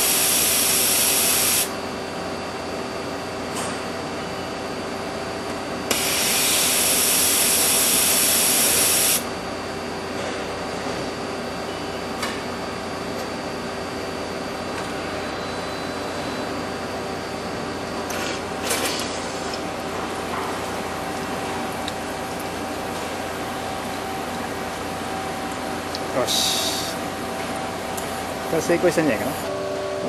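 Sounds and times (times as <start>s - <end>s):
compressed air hissing: 5.9s - 9.2s.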